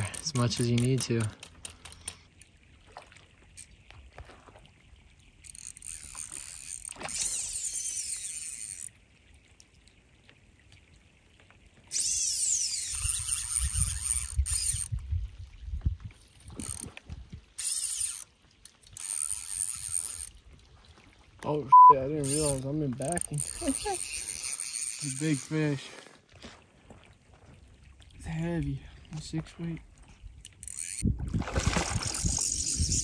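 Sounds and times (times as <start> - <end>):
fly reel clicker buzzing: 0.0 - 2.3, 5.4 - 8.9, 11.9 - 14.9, 17.6 - 18.3, 22.2 - 25.6, 30.5 - 31.0.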